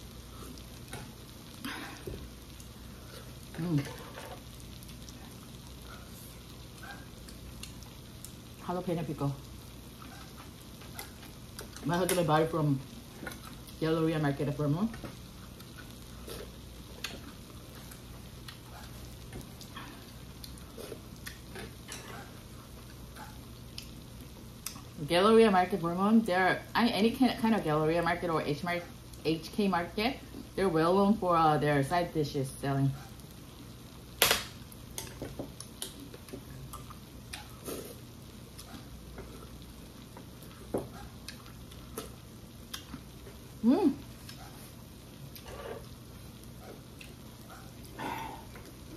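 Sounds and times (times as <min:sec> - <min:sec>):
low steady hum: 0:00.0 - 0:48.9
quiet chewing: 0:00.4 - 0:08.5, 0:15.0 - 0:24.0, 0:34.9 - 0:48.9.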